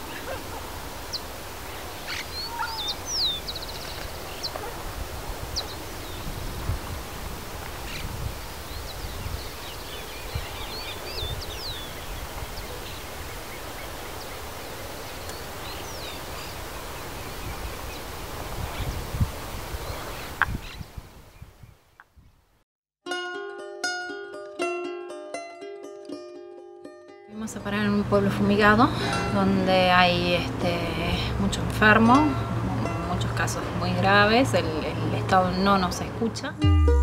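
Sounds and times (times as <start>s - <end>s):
low wind rumble: 0.0s - 22.4s
bird chirps and calls: 1.1s - 4.7s, 8.7s - 14.4s
bird trill: 2.1s - 4.6s.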